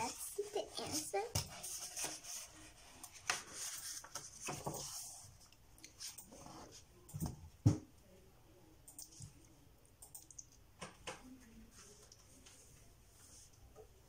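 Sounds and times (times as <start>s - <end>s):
paper pages rustling: 0.0s - 5.2s.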